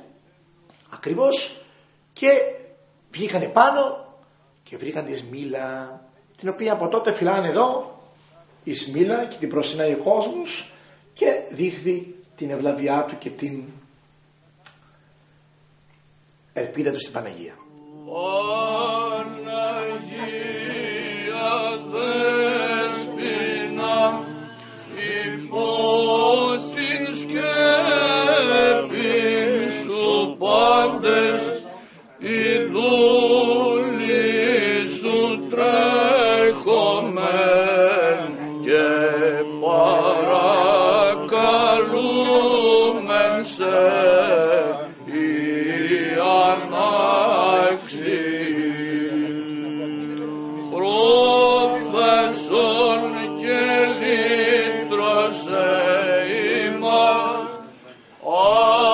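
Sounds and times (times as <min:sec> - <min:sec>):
held drone note: 0:17.7 - 0:29.7
voices chanting ornamented melody: 0:17.7 - 0:58.9.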